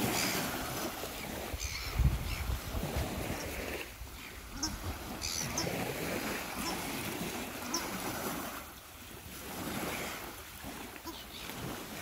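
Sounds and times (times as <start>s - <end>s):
wind buffeting microphone: 0.0s - 10.8s
small waves lapping on beach: 0.0s - 12.0s
faint gull calls: 4.3s - 8.4s, 11.0s - 11.6s.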